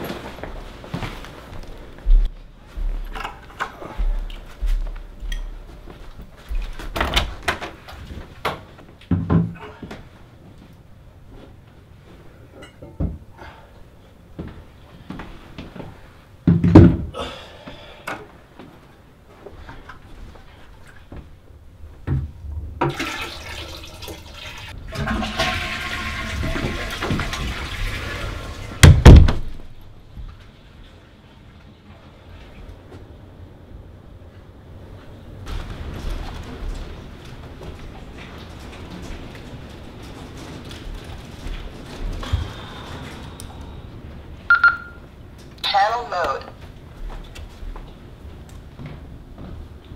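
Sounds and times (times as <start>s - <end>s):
toilet flushing: 22.8s - 29.2s
heavy door thump: 28.8s - 29.6s.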